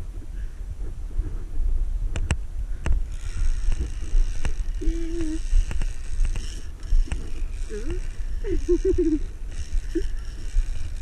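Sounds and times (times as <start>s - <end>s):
wind rumble on microphone: 0.0s - 11.0s
person humming: 4.7s - 5.7s, 7.5s - 10.6s.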